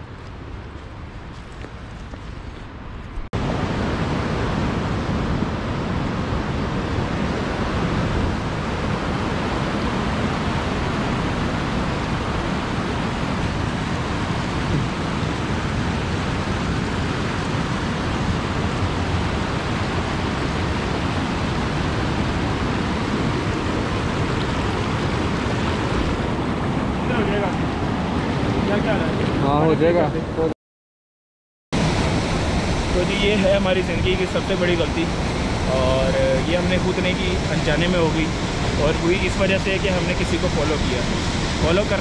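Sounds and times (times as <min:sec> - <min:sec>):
fast-flowing stream rushing: 0:06.8 - 0:29.7, 0:31.8 - 0:42.0.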